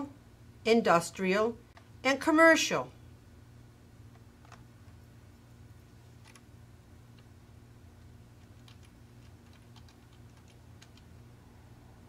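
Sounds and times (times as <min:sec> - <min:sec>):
low steady hum: 0:00.0 - 0:12.0
keyboard keystrokes: 0:08.6 - 0:11.1.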